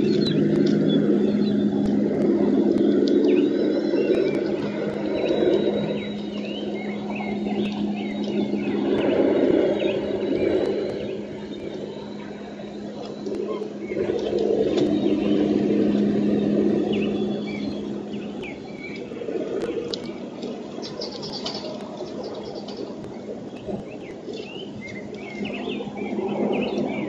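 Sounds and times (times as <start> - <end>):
steady low hum: 0.0 - 27.0
high bird chirps: 3.0 - 19.1.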